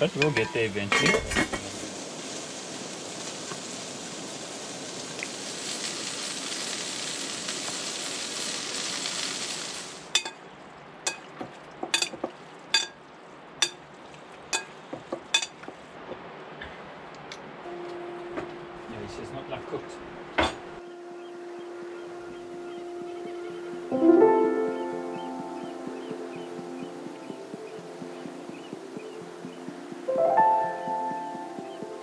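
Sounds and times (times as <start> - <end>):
vegetables sizzling in oil: 0.0 - 10.4
clinks in a glass bowl: 10.2 - 10.4, 12.0 - 12.2, 12.8 - 13.0.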